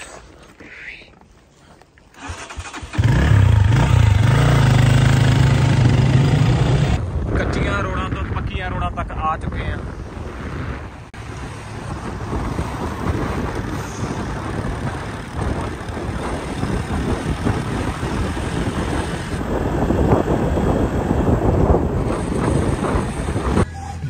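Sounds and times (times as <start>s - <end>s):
wind rushing over microphone: 2.3s - 23.7s
vehicle running and tyre noise: 2.9s - 7.4s, 9.7s - 24.0s.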